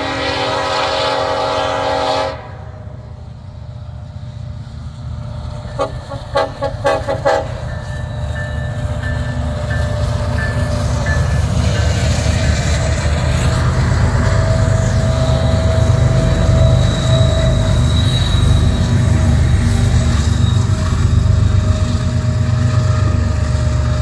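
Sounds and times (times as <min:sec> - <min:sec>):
locomotive air horn: 0:00.0 - 0:02.8, 0:05.8 - 0:07.7
train rumbling: 0:00.0 - 0:24.0.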